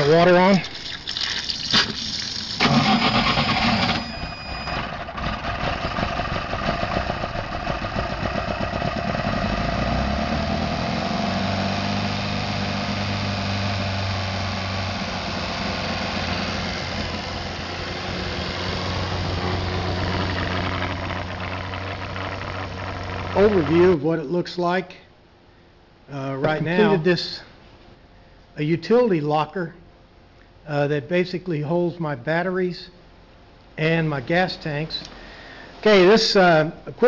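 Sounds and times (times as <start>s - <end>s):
inboard engine idling: 4.8s - 24.0s.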